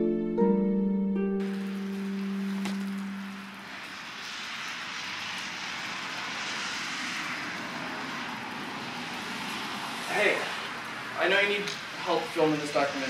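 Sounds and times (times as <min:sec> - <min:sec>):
steady rushing noise: 0:01.4 - 0:13.0.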